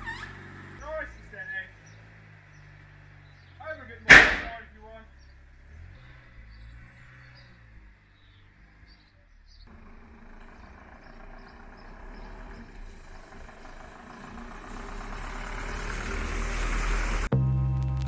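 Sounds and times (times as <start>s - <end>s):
truck engine approaching: 0.0s - 18.0s.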